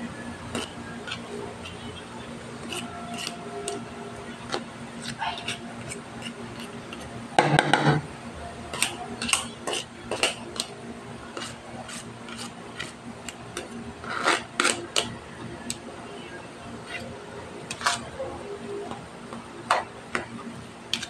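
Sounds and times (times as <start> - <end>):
spoon scraping metal colander: 2.6 - 3.8.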